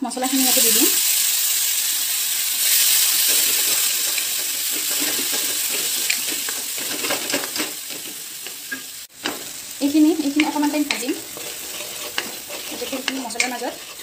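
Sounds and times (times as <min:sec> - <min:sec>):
paste sizzling in hot oil: 0:00.0 - 0:14.0
wooden spatula scraping: 0:10.2 - 0:14.0.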